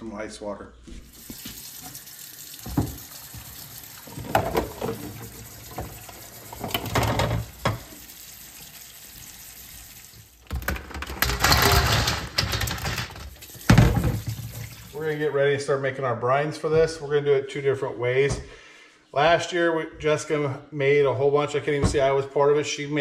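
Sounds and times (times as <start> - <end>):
hot water pouring: 1.1 - 15.2
eggs clattering into steel bowl: 2.6 - 8.0, 10.4 - 14.7.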